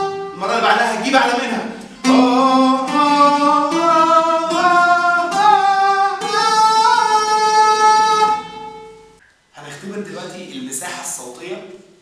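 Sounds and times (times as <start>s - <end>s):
man singing a vocal scale: 0.0s - 8.6s
oud plucks: 0.0s - 9.2s.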